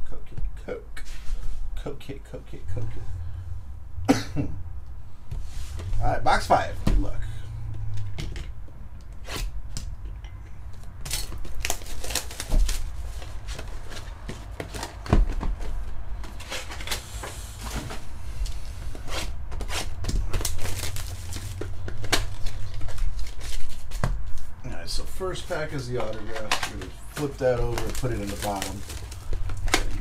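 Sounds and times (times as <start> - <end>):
steady low hum: 0.0 - 30.0
plastic wrap rustling and tearing: 11.0 - 30.0
cardboard boxes tapping and thudding: 11.2 - 16.5.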